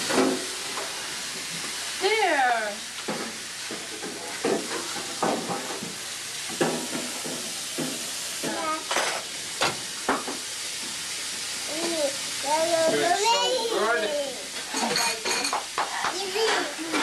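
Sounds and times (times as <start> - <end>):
steady hiss: 0.0 - 17.0
tableware knocks and clinks: 14.6 - 17.0.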